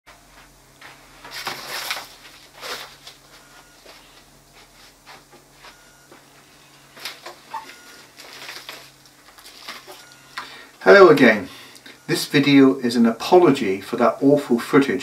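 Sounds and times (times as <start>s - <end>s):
low steady hum: 0.1s - 15.0s
rustling and scuffing: 0.2s - 10.1s.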